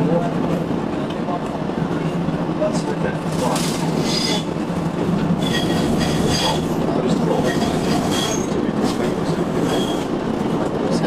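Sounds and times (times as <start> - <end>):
tram wheels rumbling on rail: 0.0 - 11.0
high-pitched wheel squeal: 4.0 - 4.6, 5.4 - 8.6, 9.5 - 10.1.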